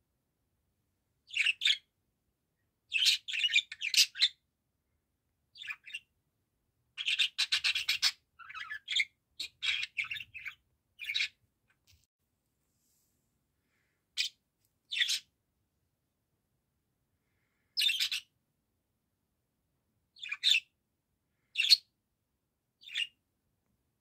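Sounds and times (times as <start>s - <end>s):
budgerigar chattering: 7.0s - 11.4s, 14.9s - 15.3s, 20.2s - 20.7s.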